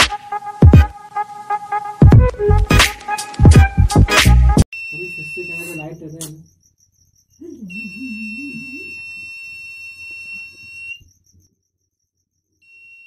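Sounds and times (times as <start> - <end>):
high-pitched alarm buzzer: 4.8 - 6.2, 7.6 - 11.0.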